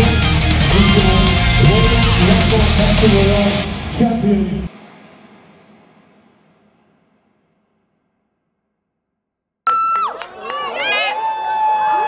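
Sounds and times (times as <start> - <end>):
loud steady high tone: 0.0 - 4.7.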